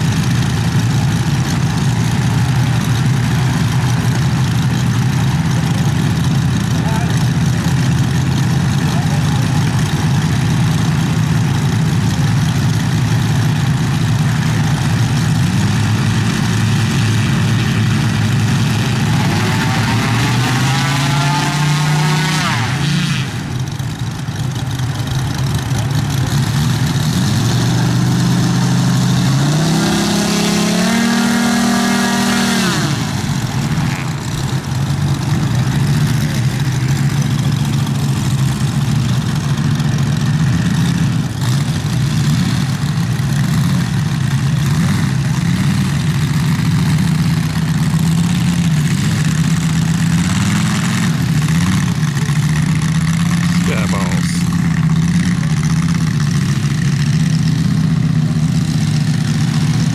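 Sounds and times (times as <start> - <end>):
model plane engines idling: 0.0 - 59.9
model plane engine revving: 15.3 - 24.0.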